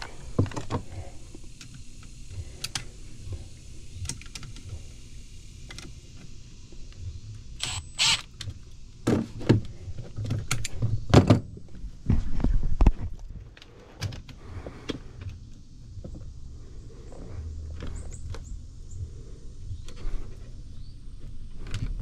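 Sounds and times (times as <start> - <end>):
impact driver whirring: 7.6 - 8.3.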